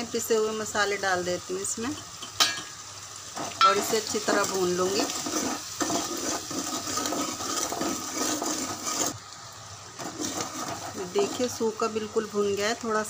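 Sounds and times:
meat sizzling in hot oil: 0.0s - 13.0s
ladle scraping a pot: 3.4s - 9.2s, 9.9s - 11.6s.

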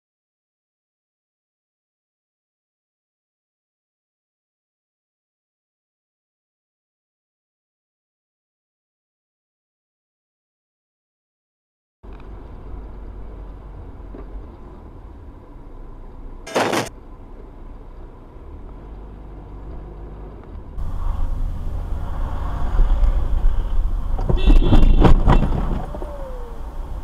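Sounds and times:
car engine and road noise: 12.0s - 27.0s.

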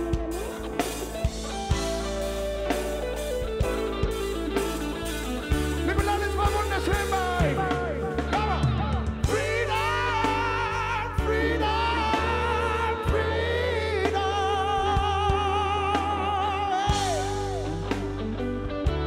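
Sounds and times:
reggae band playing: 0.0s - 19.0s
steady bass line: 0.0s - 19.0s
person singing with vibrato: 6.1s - 18.1s.

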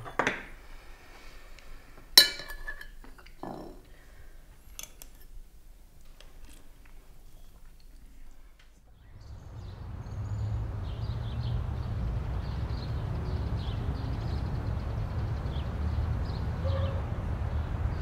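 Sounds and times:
spoons clinking on ceramic plates: 2.1s - 3.9s.

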